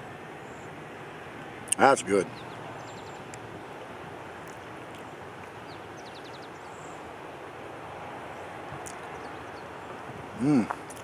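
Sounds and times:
distant traffic: 0:00.0 - 0:11.0
bird chirping: 0:00.4 - 0:00.8, 0:02.2 - 0:03.8, 0:04.5 - 0:07.1, 0:08.3 - 0:10.0.

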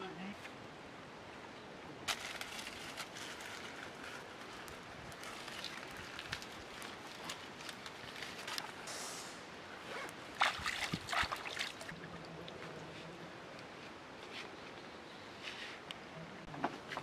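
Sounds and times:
small clicks and rustles: 0:02.1 - 0:08.8
stream trickling: 0:02.1 - 0:08.9, 0:10.1 - 0:13.8
hands splashing in water: 0:10.3 - 0:12.0.

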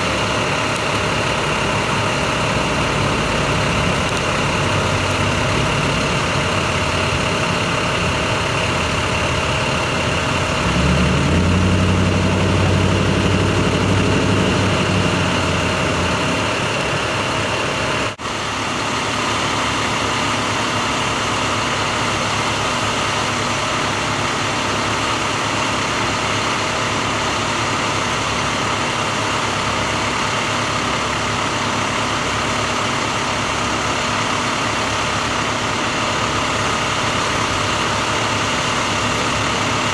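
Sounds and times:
truck engines idling: 0:00.0 - 0:39.9
engine revving: 0:00.2 - 0:18.2.

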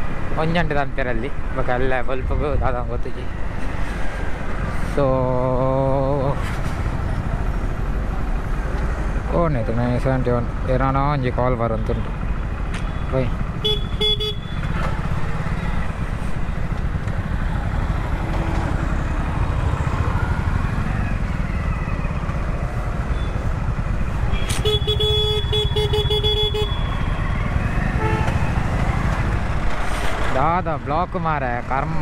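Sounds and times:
motorbike engine and road noise: 0:00.0 - 0:32.0
vehicle horn honking: 0:13.6 - 0:14.6, 0:24.3 - 0:26.9, 0:28.0 - 0:28.4.

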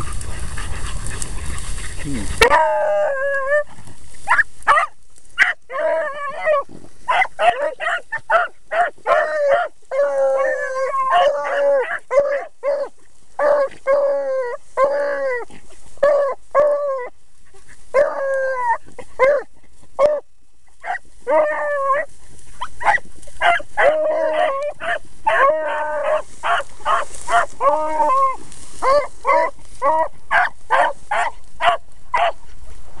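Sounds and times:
dogs barking: 0:00.0 - 0:03.6, 0:04.2 - 0:14.1, 0:17.9 - 0:20.2, 0:20.8 - 0:28.2, 0:28.8 - 0:32.4
hounds baying: 0:00.0 - 0:32.6.

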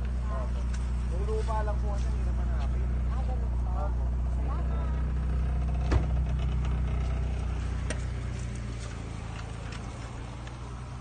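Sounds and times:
motor engine humming: 0:00.0 - 0:11.0.

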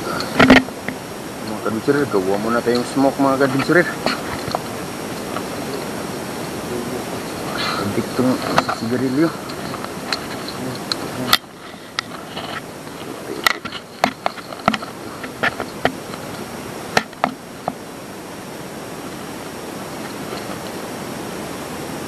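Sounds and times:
handling clicks and knocks: 0:00.0 - 0:01.0, 0:02.0 - 0:05.9, 0:07.3 - 0:17.8
faint insect-like drone: 0:00.0 - 0:22.0
outdoor hiss: 0:00.0 - 0:22.0.

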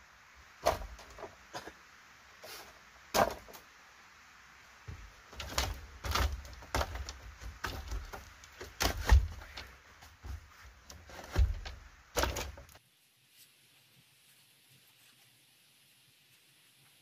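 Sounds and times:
bamboo slats knocking: 0:00.6 - 0:01.7, 0:03.1 - 0:03.6, 0:04.9 - 0:12.8.

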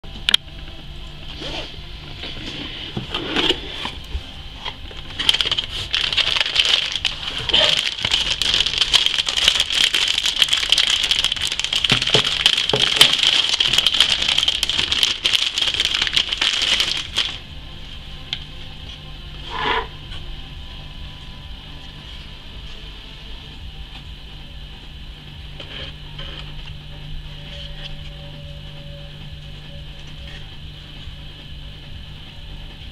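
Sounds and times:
plastic bag crinkling: 0:04.8 - 0:17.5.

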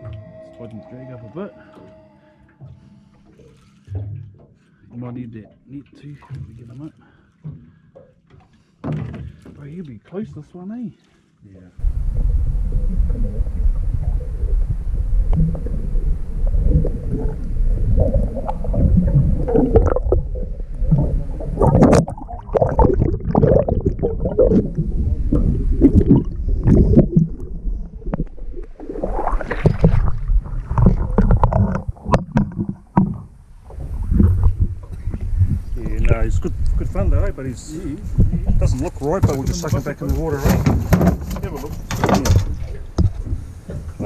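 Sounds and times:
underwater rumbling and gurgling: 0:00.0 - 0:05.9, 0:11.8 - 0:44.0
knocks and rattles on camera housing: 0:38.2 - 0:44.0.

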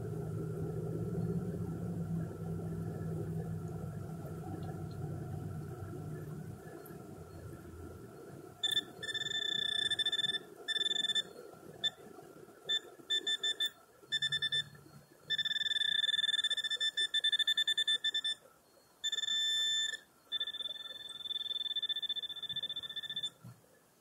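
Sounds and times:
metal detector tones and beeps: 0:08.6 - 0:12.0, 0:12.6 - 0:23.4.

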